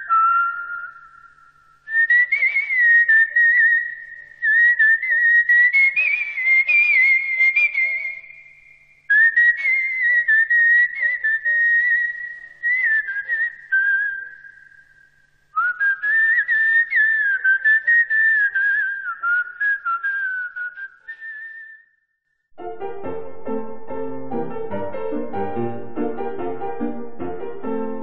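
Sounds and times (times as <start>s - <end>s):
whistled tune: 0.0s - 22.2s.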